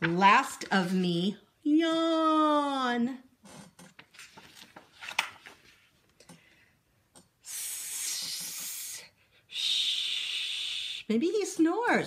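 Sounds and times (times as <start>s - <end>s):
paper page turning: 3.9s - 6.0s
woman hushing shhh: 7.4s - 11.1s.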